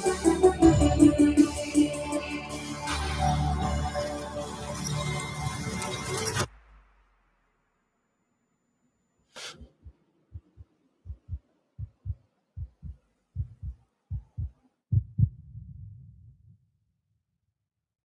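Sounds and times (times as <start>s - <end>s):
heartbeat thuds: 9.6s - 16.6s.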